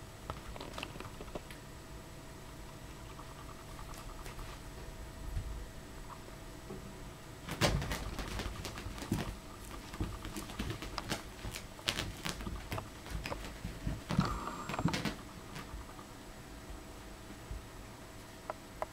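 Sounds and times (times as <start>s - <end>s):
puppy paws scrabbling on carpet: 0.3s - 1.5s, 7.5s - 16.0s
rubber balls bumping: 7.5s - 16.0s.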